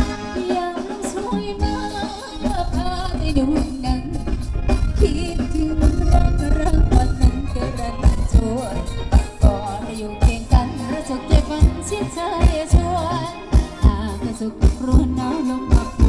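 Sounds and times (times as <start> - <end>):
driving drum beat: 0.0 - 16.0
person singing: 0.0 - 16.0.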